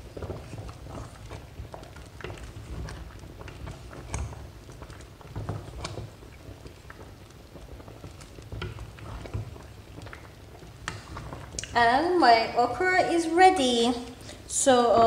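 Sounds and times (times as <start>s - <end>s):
wooden spoon stirring soup: 0.0s - 14.5s
spoon tapping and scraping pot: 0.1s - 7.1s, 7.8s - 11.8s.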